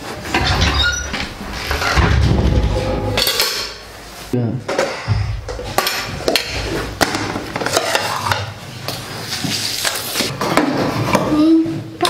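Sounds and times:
plates and cutlery clattering: 0.0s - 3.9s, 4.7s - 8.6s.

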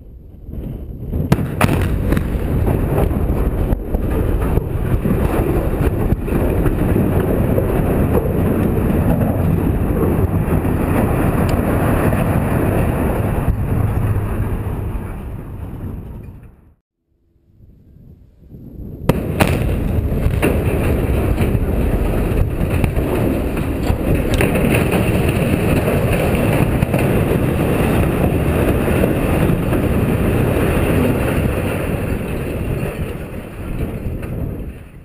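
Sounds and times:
explosive charges cracking: 0.5s - 16.1s, 19.0s - 35.0s
steel structure crashing rumble: 1.2s - 16.4s, 19.1s - 35.0s.

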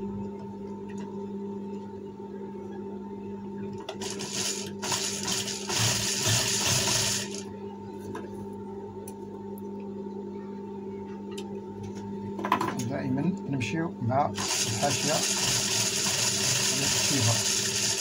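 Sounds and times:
sewing machine humming: 3.8s - 7.5s, 14.3s - 18.0s.

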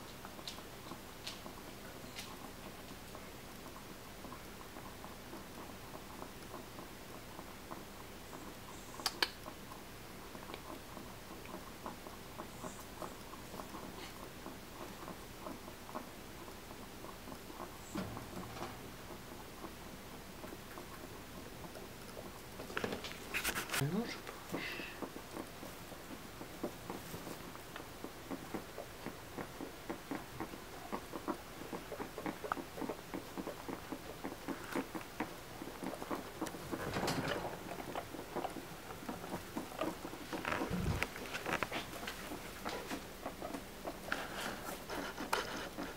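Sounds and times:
guinea pig chewing food: 0.0s - 45.9s
guinea pig rustling in straw: 23.1s - 24.2s.

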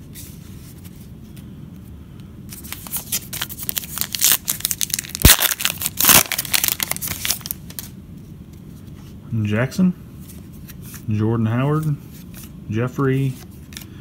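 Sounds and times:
foil wrapper crinkling and ripping: 2.6s - 7.9s.

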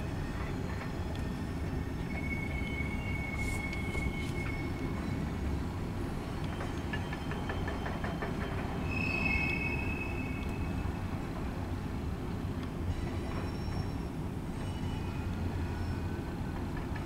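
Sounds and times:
train cars rumbling: 0.0s - 17.0s
steel wheel squeal: 0.3s - 5.4s, 6.2s - 10.9s, 12.9s - 16.2s.

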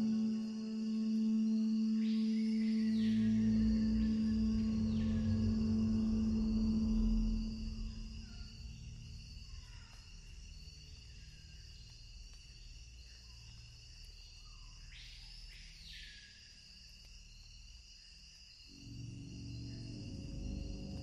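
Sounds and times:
eerie electronic drone: 0.0s - 11.6s, 18.7s - 21.0s
low rumble: 3.1s - 10.5s.

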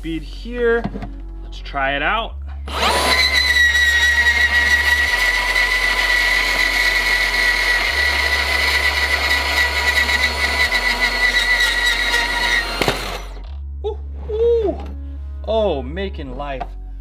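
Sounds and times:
band saw whining through metal: 2.7s - 13.4s.

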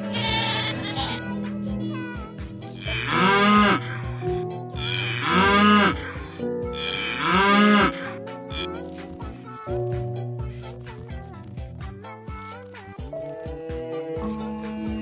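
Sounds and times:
background music with steady beat: 0.0s - 15.0s
cow mooing: 2.8s - 6.2s, 6.8s - 8.7s.

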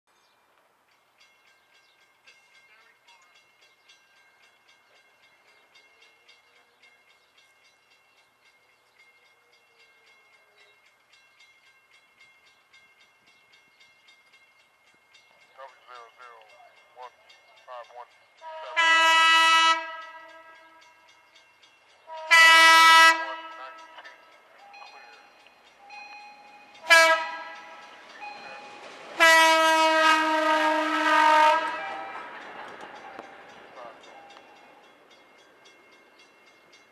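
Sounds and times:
train horn blasts: 18.4s - 21.0s, 22.0s - 24.0s, 26.2s - 32.3s.

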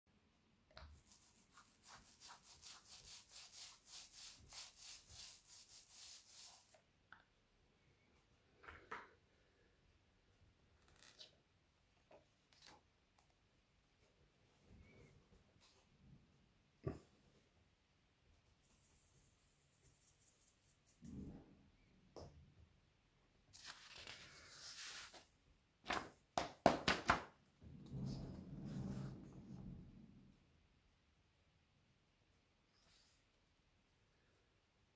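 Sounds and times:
paint roller rubbing hiss: 1.1s - 6.8s
glitter sliding off paper: 23.5s - 25.3s
paper rustling: 23.5s - 25.3s
paper being knocked: 25.8s - 27.4s.

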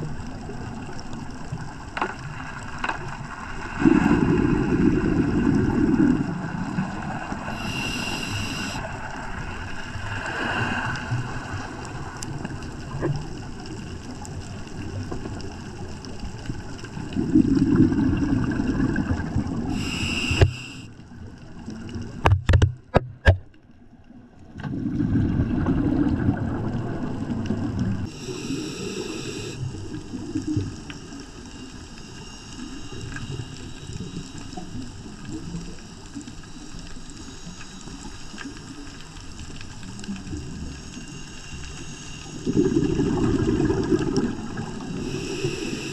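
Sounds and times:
diver breathing through regulator: 7.4s - 8.9s, 19.6s - 20.9s, 28.0s - 29.7s, 41.1s - 45.9s.

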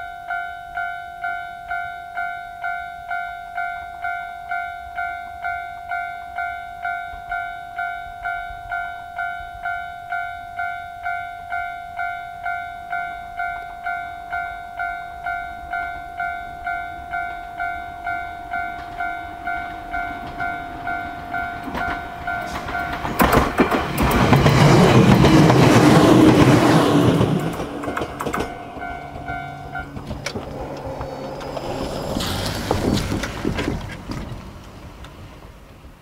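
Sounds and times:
level crossing warning bell: 0.0s - 32.3s
train wheels clattering over rail joints: 19.7s - 35.8s.

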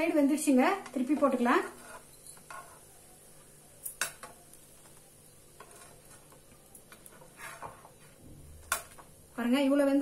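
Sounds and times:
metal spatula scraping and knocking: 0.8s - 2.9s, 5.5s - 9.1s.

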